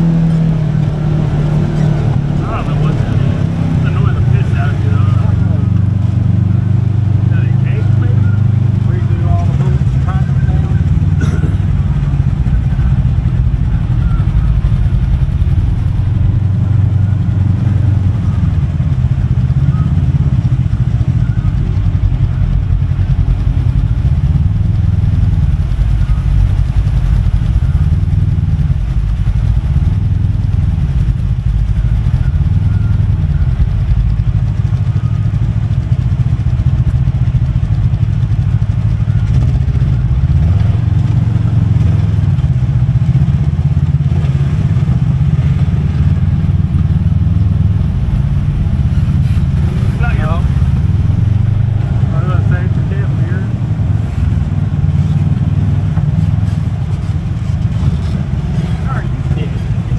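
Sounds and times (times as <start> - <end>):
utility vehicle engine droning: 0.0 - 59.9.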